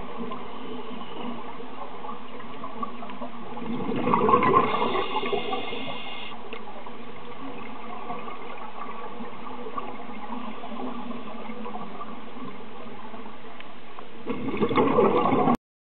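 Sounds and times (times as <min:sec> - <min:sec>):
rushing bubbling water: 0:02.0 - 0:05.9, 0:14.3 - 0:15.6.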